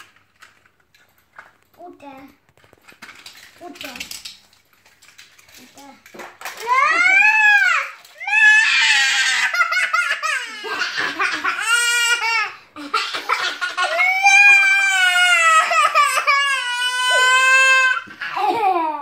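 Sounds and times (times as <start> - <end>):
boy crying: 6.7 - 19.0
girl laughing: 8.8 - 14.3, 18.2 - 19.0.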